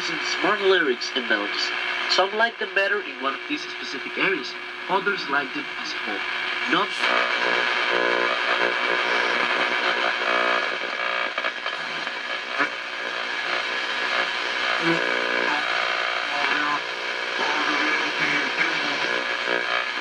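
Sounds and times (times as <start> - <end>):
garbled broadcast audio: 0.0 - 20.0
radio static: 0.0 - 20.0.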